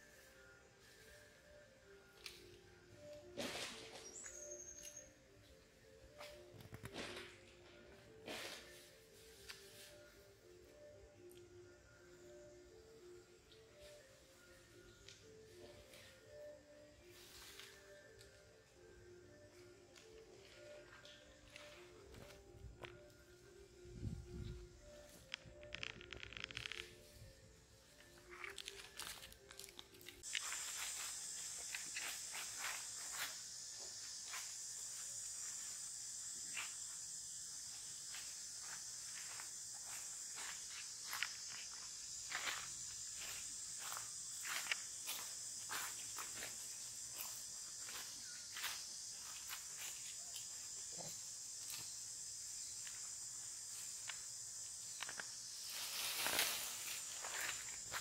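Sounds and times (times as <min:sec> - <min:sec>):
insects droning: 0:00.0 - 0:58.0
rustle of branches and leaves: 0:15.7 - 0:18.4, 0:24.5 - 0:35.8, 0:55.0 - 0:58.0
sharp crackles and clicks: 0:25.2 - 0:27.0.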